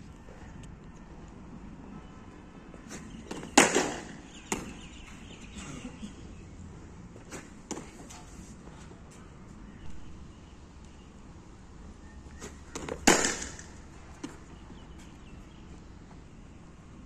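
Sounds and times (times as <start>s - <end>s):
bat hitting ball: 3.2s - 4.9s, 12.4s - 13.9s.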